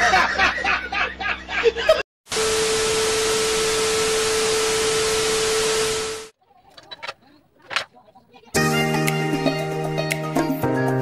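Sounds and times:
man laughing loudly: 0.0 - 2.0
static hiss: 2.3 - 6.4.

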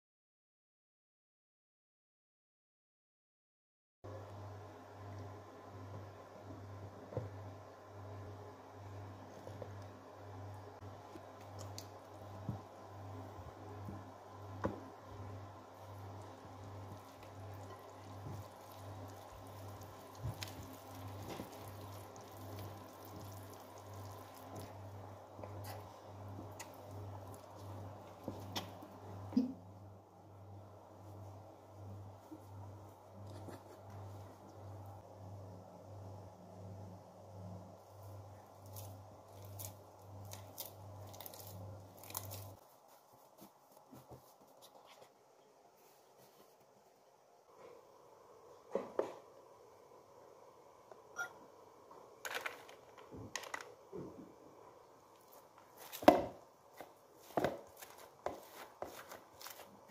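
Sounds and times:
dough squishing while kneaded: 5.0 - 29.5, 30.1 - 46.9, 53.8 - 59.9
wet stirring with spoon: 15.8 - 28.9, 56.8 - 59.9.

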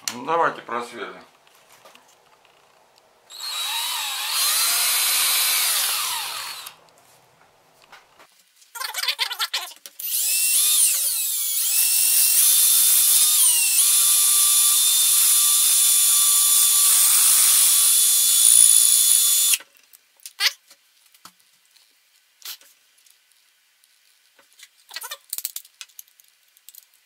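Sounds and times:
cordless drill whining: 3.3 - 6.8, 10.0 - 19.6.

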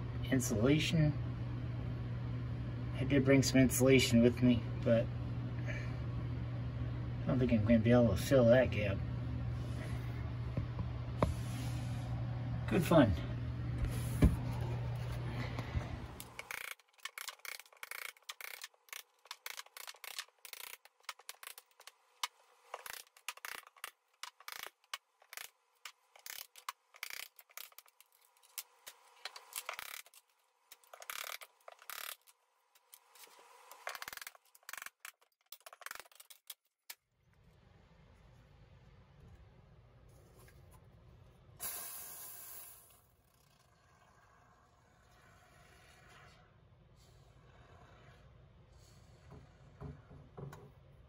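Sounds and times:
hand tools clicking and scraping: 16.2 - 36.7.

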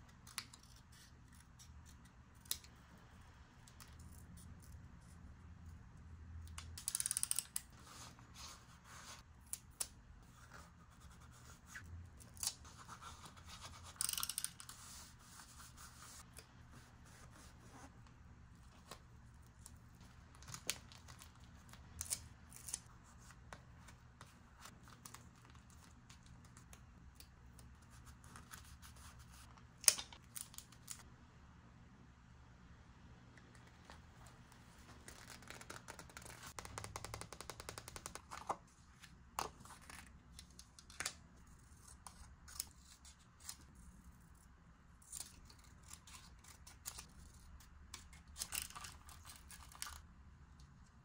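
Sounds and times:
scissors snipping paper: 45.0 - 50.0.

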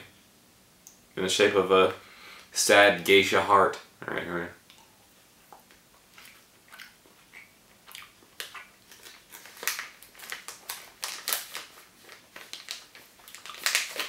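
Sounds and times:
chewing gummy candy: 5.6 - 11.6, 12.7 - 14.0.

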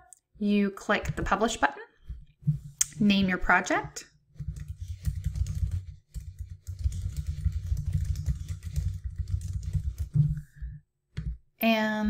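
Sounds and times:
typing on computer keyboard: 4.4 - 10.4.

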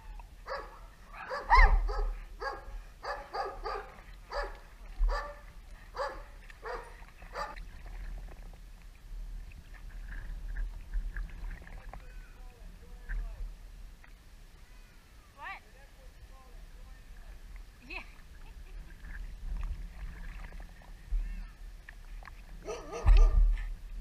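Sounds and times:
dog barking: 0.5 - 5.4, 6.0 - 7.6, 22.6 - 23.4.

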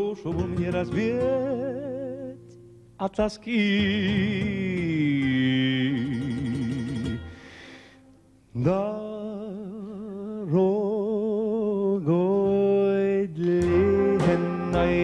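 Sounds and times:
song with held vibrato notes: 6.4 - 8.5, 13.6 - 15.0.

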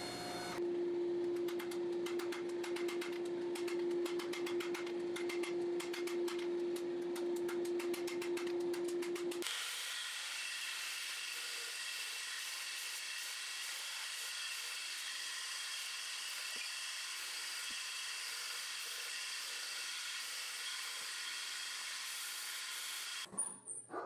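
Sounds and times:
belt grinder grinding steel: 7.7 - 23.3.

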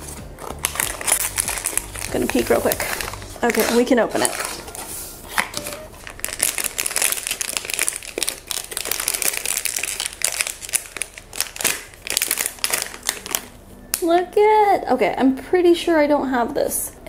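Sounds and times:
foil bag crinkling and tearing: 0.0 - 13.6.

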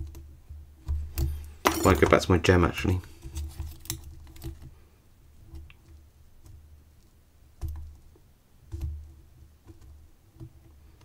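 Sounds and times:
soft handling bumps: 0.8 - 4.7.

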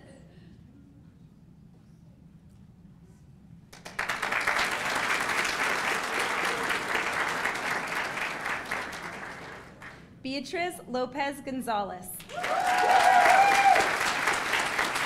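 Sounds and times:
audience applauding: 3.8 - 10.1, 12.2 - 15.0.

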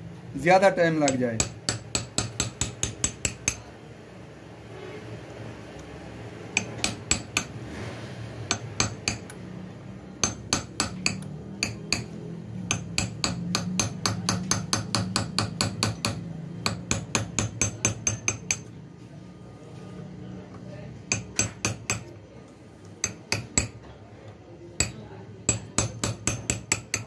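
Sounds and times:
hammer tapping on steel punch: 1.0 - 3.7, 6.6 - 7.5, 8.5 - 9.4, 10.2 - 18.7, 21.1 - 22.2, 23.0 - 23.9, 24.8 - 27.0.

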